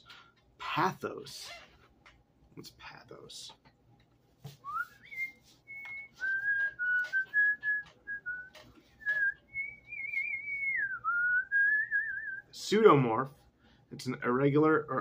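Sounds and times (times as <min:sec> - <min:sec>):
person whistling a tune: 0:04.6 - 0:12.4.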